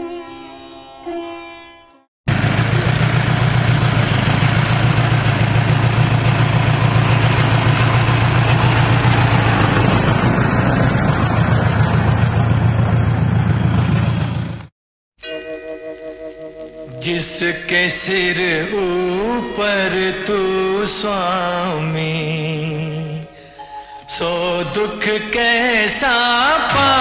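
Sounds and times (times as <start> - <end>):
jeep engine running: 2.3 - 14.7.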